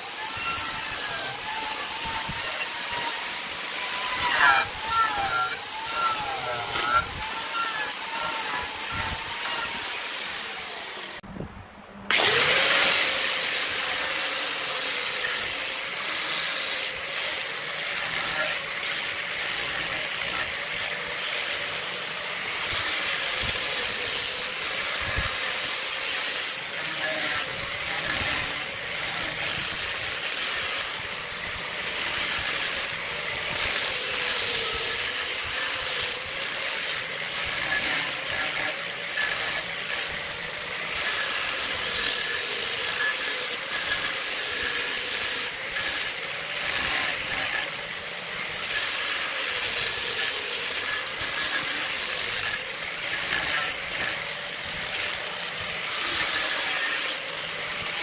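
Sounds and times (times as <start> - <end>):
angle grinder motor hum: 0.0 - 58.0.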